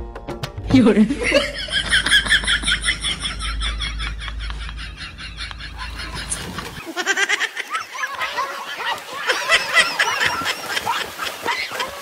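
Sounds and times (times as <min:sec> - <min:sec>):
water splashing: 0:05.7 - 0:12.0
children shrieking and shouting: 0:07.4 - 0:12.0.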